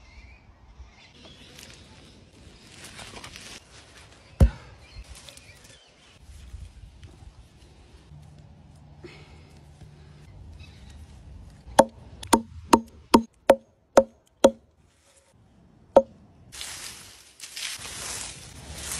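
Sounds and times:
hatchet chopping twigs: 0:11.7 - 0:14.6
twig broom sweeping leaves: 0:16.5 - 0:18.9.

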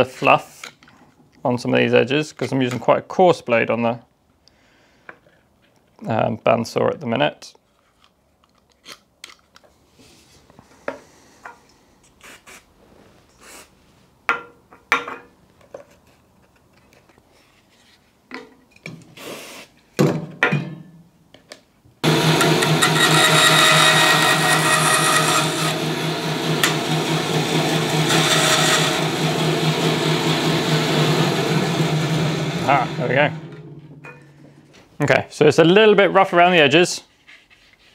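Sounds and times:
workshop machine humming: 0:22.0 - 0:34.9
utility knife scraping plywood: 0:22.8 - 0:25.8, 0:27.6 - 0:29.1.

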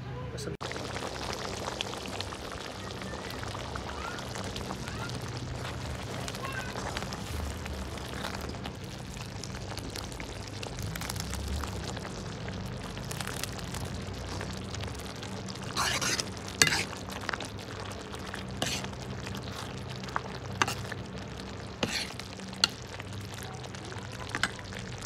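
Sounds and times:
curry bubbling at a boil: 0:00.6 - 0:25.0
steel ladle stirring gravy: 0:03.4 - 0:10.0, 0:15.4 - 0:25.0.

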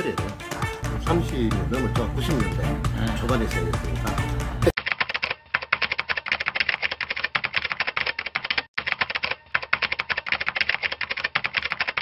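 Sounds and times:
rapid keystroke clicks: 0:04.8 - 0:12.0.

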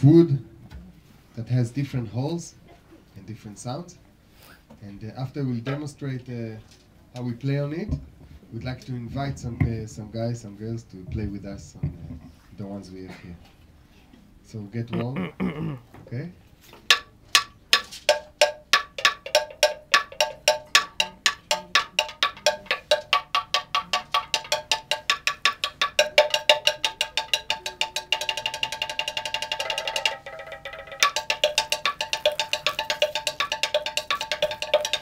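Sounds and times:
slit drum struck with sticks: 0:16.9 - 0:35.0.

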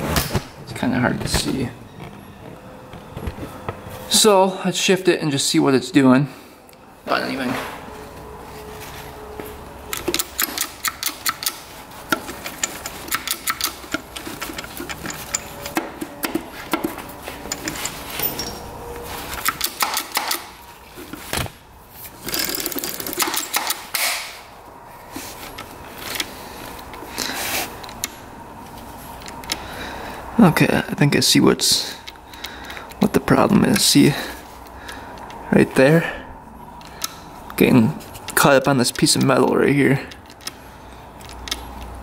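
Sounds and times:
gearbox shift mechanism clicking: 0:09.9 - 0:18.1.

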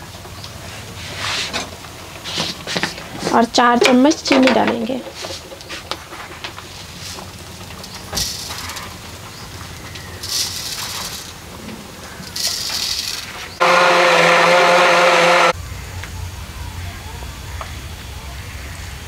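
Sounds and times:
mixer-grinder motor whine: 0:13.6 - 0:15.6.

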